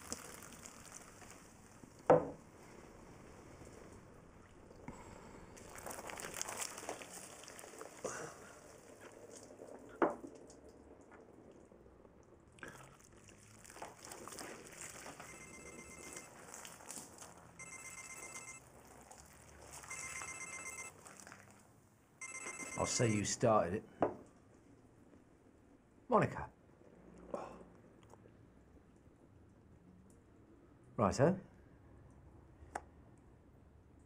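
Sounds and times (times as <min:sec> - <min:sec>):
phone ringing with electronic trill: 0:15.2 - 0:16.3, 0:17.6 - 0:18.6, 0:19.8 - 0:21.0, 0:22.2 - 0:23.3.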